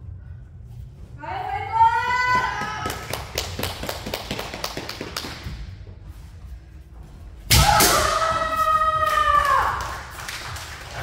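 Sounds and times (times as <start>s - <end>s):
woman shouting: 1.2s - 2.9s.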